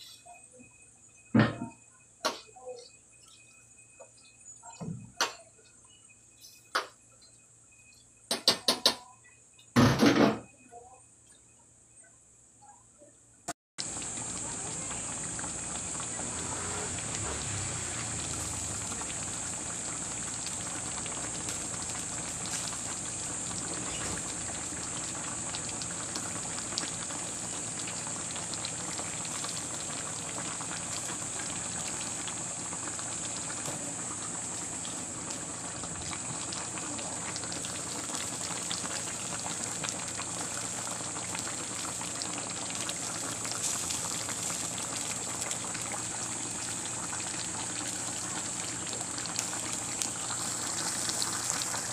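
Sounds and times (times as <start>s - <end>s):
high hiss: 13.8s - 51.9s
stew bubbling in a metal pot: 13.8s - 51.9s.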